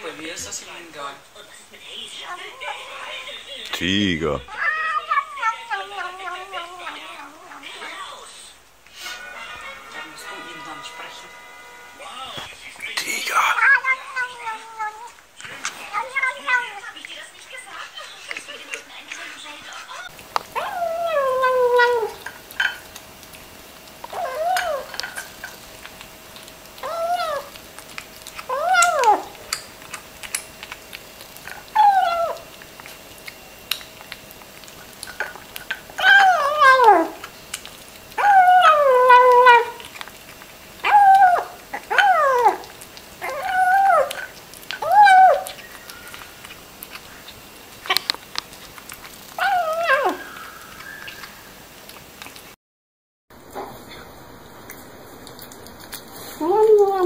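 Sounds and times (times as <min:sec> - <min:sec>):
kitten mewing: 0:04.3 - 0:08.0, 0:13.4 - 0:17.0, 0:20.5 - 0:22.2, 0:26.8 - 0:27.6, 0:28.4 - 0:29.5.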